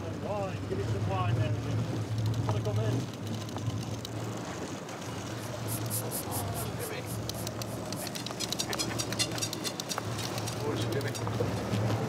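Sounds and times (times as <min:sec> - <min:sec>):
boat engine humming: 0:00.0 - 0:12.0
fishing reel clicking: 0:05.6 - 0:11.2.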